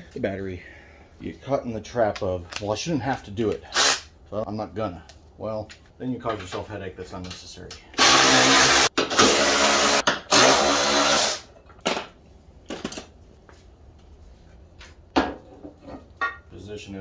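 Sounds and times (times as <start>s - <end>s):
handheld power tool running: 8.0s - 11.4s.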